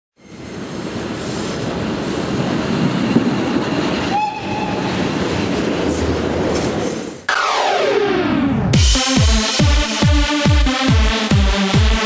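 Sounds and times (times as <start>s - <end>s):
train rumbling past: 0.2s - 7.3s.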